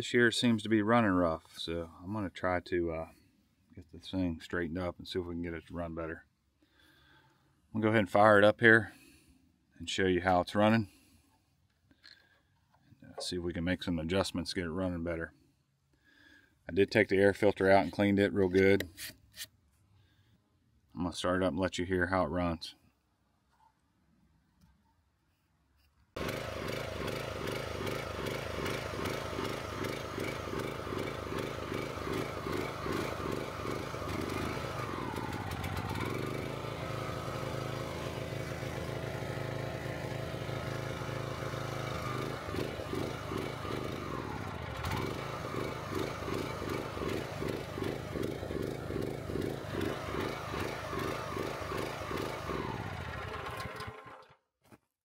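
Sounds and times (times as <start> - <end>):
engine running rough: 26.2 - 54.4.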